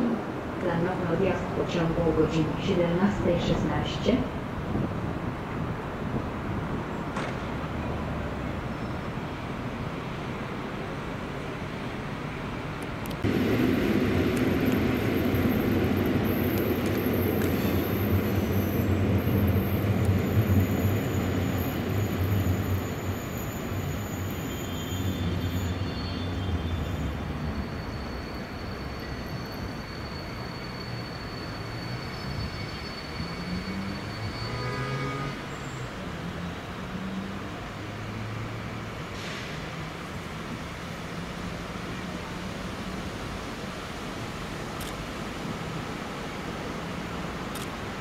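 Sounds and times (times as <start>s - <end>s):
diesel locomotive engine drone: 0.0s - 48.0s
thin high squeal: 20.6s - 35.6s.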